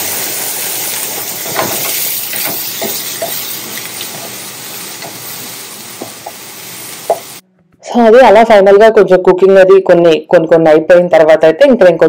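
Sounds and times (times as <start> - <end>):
vegetables sizzling in a frying pan: 0.0 - 7.4
wooden spatula knocking against pan: 1.5 - 3.5, 6.0 - 6.4, 7.0 - 7.3.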